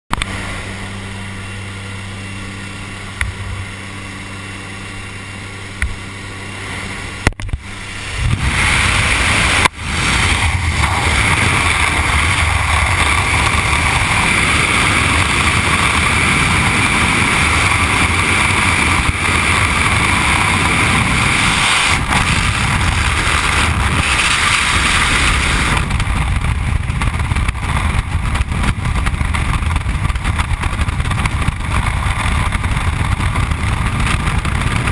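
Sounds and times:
plane engine and propeller drone: 0:00.1 - 0:34.9
wind rushing: 0:07.6 - 0:34.9.

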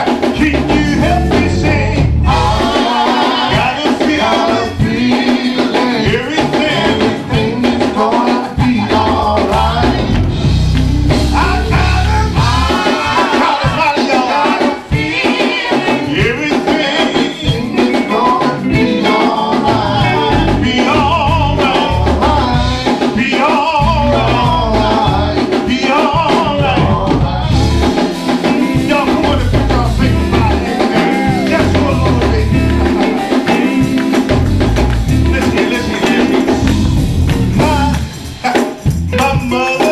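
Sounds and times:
strong bass notes: 0:00.0 - 0:05.0, 0:08.6 - 0:13.8, 0:18.6 - 0:22.9, 0:23.8 - 0:25.8, 0:26.4 - 0:39.4
man singing into a microphone: 0:00.0 - 0:10.2, 0:11.3 - 0:34.3, 0:35.2 - 0:36.7, 0:37.5 - 0:39.9
church band playing gospel: 0:00.0 - 0:39.9.

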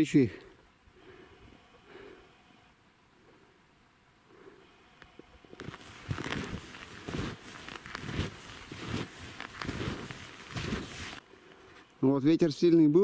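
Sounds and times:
skis crunching over snow crust: 0:05.6 - 0:11.2.

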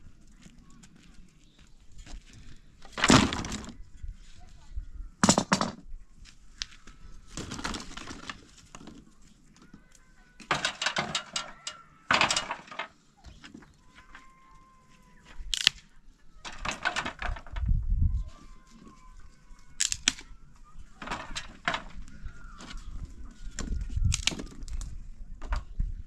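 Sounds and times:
branches clattering on concrete: 0:05.2 - 0:17.7, 0:18.3 - 0:25.8
faint bird calls: 0:11.2 - 0:12.4, 0:13.1 - 0:16.5, 0:18.1 - 0:24.8.

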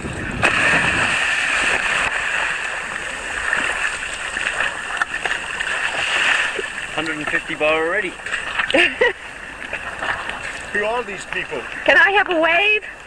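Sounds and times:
diver splashing into water: 0:00.0 - 0:07.0
churning water rushing: 0:00.0 - 0:13.0.

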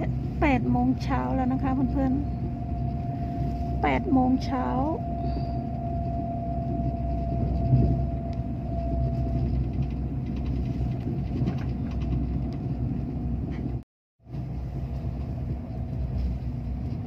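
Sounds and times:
thin steady whine: 0:00.0 - 0:13.6
train rumbling inside carriage: 0:00.0 - 0:17.0.

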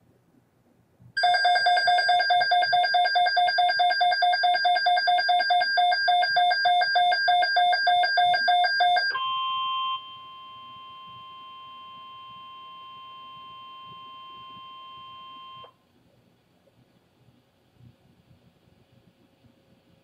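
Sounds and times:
electronic alarm beeping: 0:01.2 - 0:15.7.

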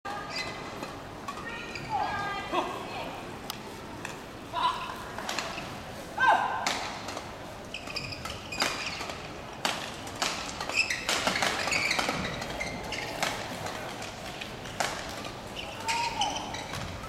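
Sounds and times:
shoes squeaking on court: 0:00.2 - 0:01.0, 0:01.6 - 0:02.0, 0:07.6 - 0:09.3, 0:10.2 - 0:14.4, 0:15.0 - 0:17.0.

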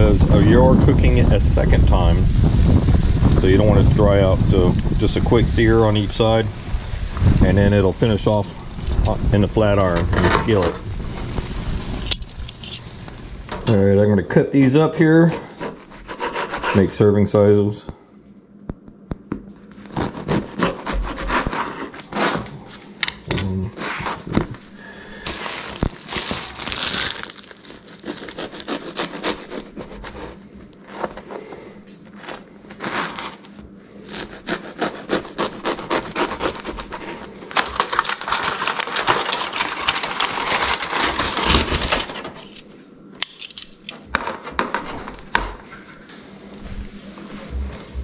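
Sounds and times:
bread crust crackling: 0:00.0 - 0:16.9, 0:23.8 - 0:45.7
knife sawing through bread: 0:15.3 - 0:16.9, 0:19.9 - 0:22.5, 0:28.0 - 0:31.1, 0:32.7 - 0:37.4.

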